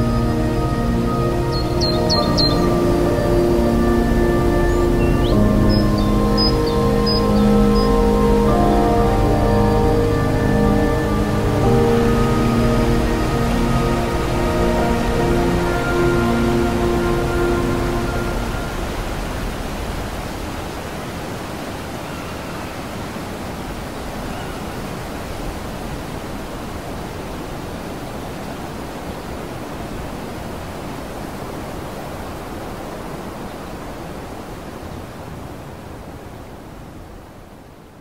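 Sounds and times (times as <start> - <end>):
background music: 0.0 - 19.6
steady rushing noise: 0.0 - 22.0.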